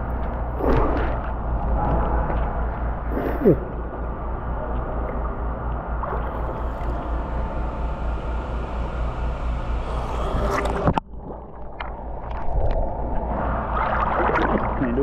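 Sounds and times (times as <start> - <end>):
pool water sloshing: 6.0 - 15.0.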